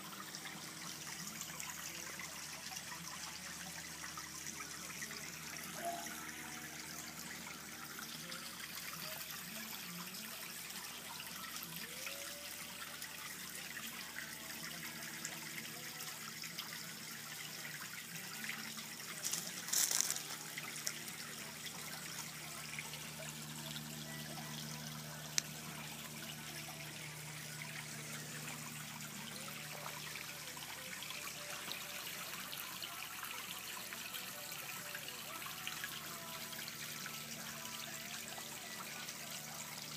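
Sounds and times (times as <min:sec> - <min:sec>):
water trickling in pond: 0:00.0 - 0:39.9.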